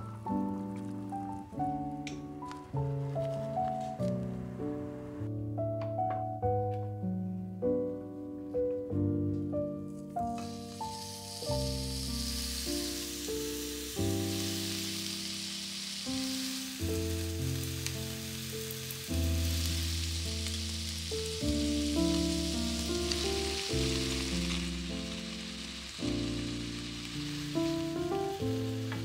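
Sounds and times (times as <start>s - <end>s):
beef sizzling in frying pan: 0.0s - 3.8s, 10.3s - 29.0s
background music with sustained chords: 9.1s - 29.0s.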